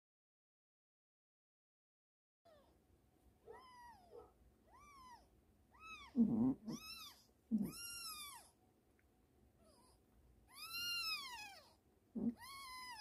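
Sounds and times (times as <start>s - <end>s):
kittens mewing: 3.5s - 8.5s, 9.6s - 13.0s.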